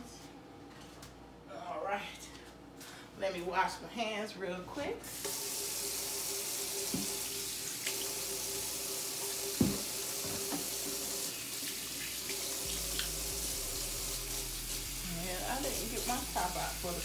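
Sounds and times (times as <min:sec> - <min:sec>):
tap water running: 0:05.1 - 0:17.0.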